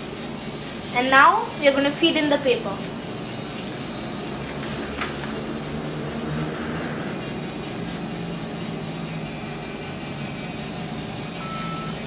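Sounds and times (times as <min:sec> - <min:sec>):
printer rollers feeding paper: 0:02.9 - 0:12.0.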